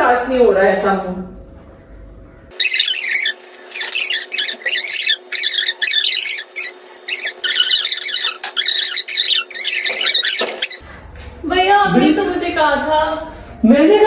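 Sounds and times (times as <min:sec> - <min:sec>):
high-pitched squeaky chattering: 0:02.5 - 0:10.8.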